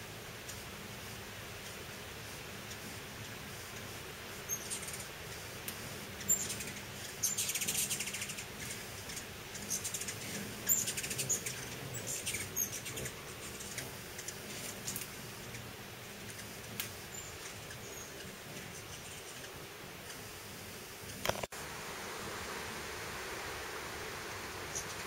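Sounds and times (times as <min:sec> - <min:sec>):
hummingbird chips: 0:00.3 - 0:21.5
buzzy twittering chatter: 0:02.5 - 0:21.2.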